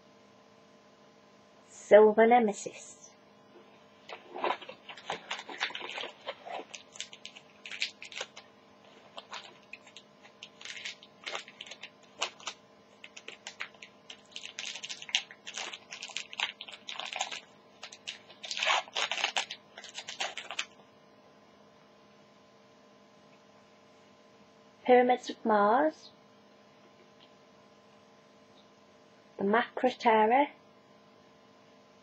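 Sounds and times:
foil wrapper crinkling: 4.1s - 20.8s
scissors cutting foil: 9.0s - 20.6s.

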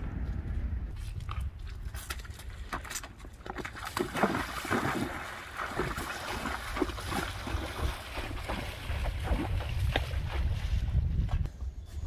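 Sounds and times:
horse splashing through water: 3.2s - 11.0s.

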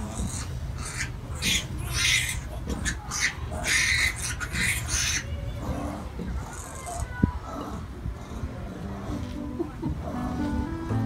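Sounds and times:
piglets squealing: 0.0s - 7.8s.

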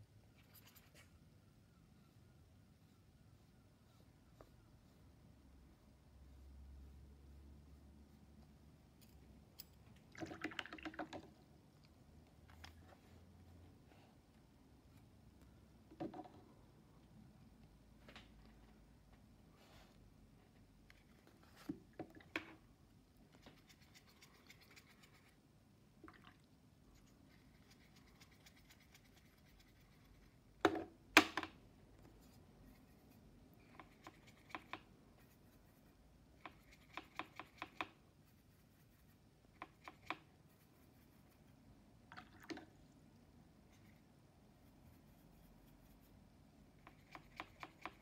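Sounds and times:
brush scratching paint: 0.2s - 9.0s, 23.2s - 25.6s, 26.8s - 30.6s, 32.0s - 41.8s, 43.6s - 48.0s.

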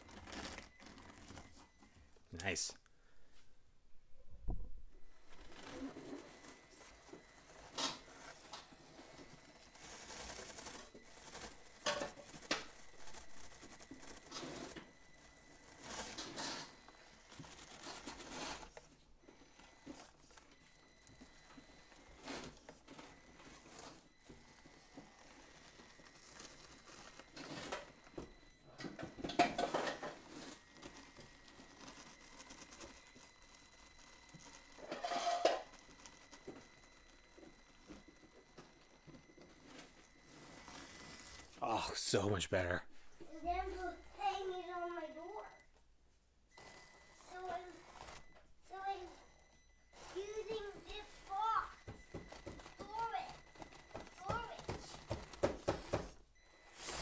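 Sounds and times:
small motor whine: 5.1s - 41.6s
toy car tyres scraping over foam: 5.2s - 19.0s.

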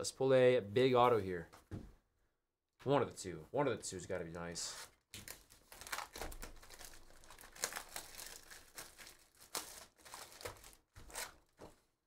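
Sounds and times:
plastic wrap crinkling and tearing: 5.1s - 11.6s.

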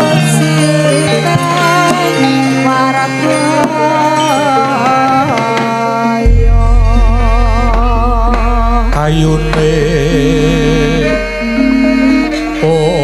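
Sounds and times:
gamelan accompaniment: 0.0s - 5.4s, 6.3s - 13.0s
deep low tone: 6.3s - 11.6s.

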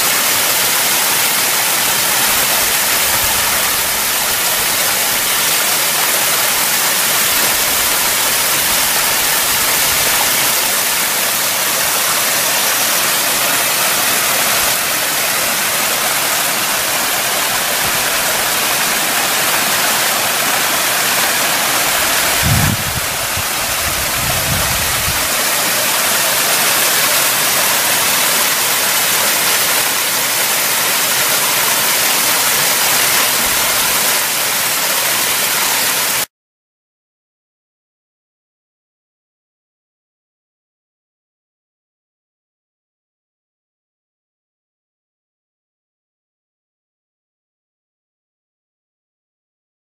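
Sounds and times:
stream rushing over rocks: 0.0s - 36.3s
low rumble: 22.2s - 25.3s.

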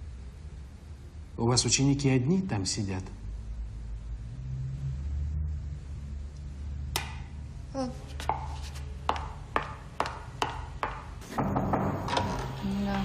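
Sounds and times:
high heels clicking on hard floor: 8.1s - 13.0s.

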